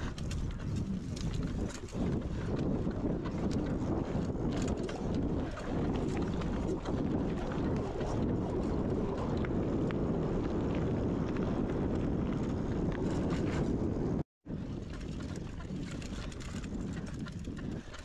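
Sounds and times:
bike tyres rumbling on gravel: 0.0 - 18.0
wind buffeting microphone: 0.0 - 18.0
small clicks and rattles: 15.8 - 18.0.

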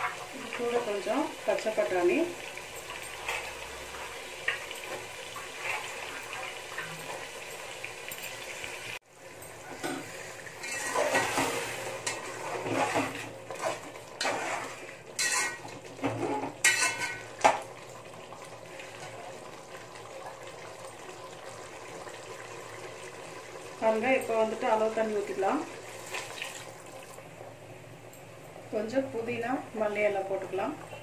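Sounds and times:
metal spoon scraping pot: 10.6 - 13.2, 14.2 - 15.6.

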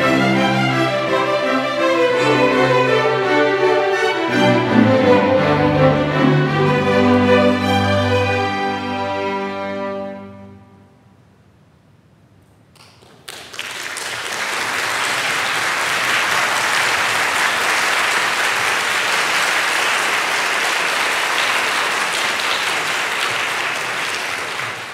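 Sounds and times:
audience applause: 12.8 - 24.9.

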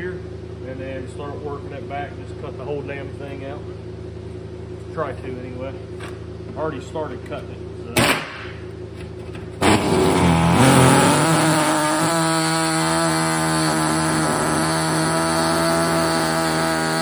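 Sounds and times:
power cutting tool cutting metal: 9.6 - 17.0.

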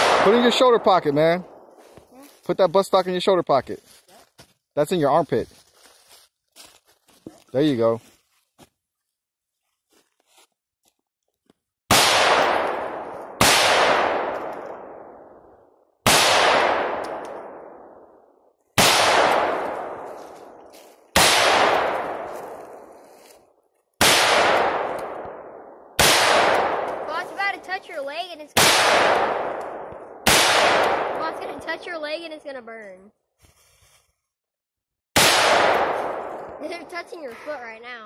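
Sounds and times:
rifle shots echoing: 0.0 - 1.7, 11.9 - 18.2, 18.8 - 20.6, 21.2 - 22.9, 24.0 - 27.6, 28.6 - 31.6, 35.2 - 36.9.

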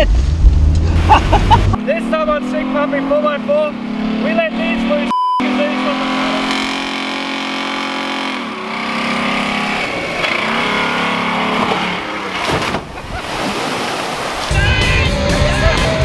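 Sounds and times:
vehicle engine revving: 0.0 - 13.4.

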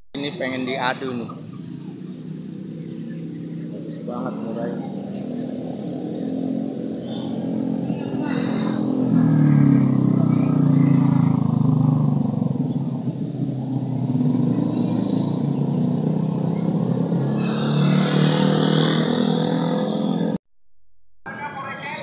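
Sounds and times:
vehicle engine running: 0.2 - 17.3.

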